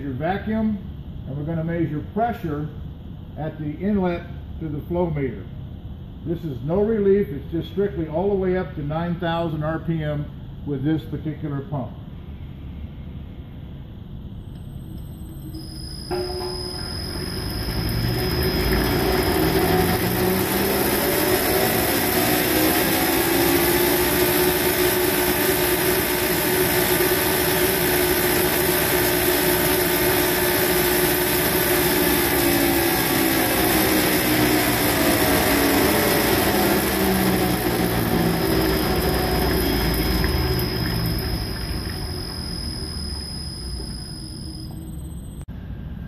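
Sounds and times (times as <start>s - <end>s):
oil pump mechanical whine: 12.3s - 45.5s.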